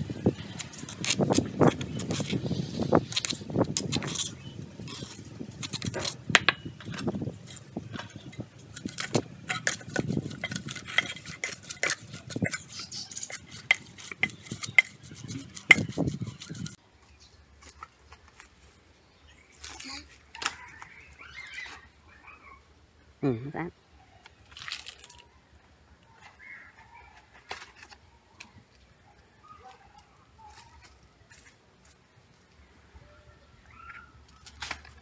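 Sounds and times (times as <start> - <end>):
metal spoon scraping stone mortar: 0.1 - 16.8.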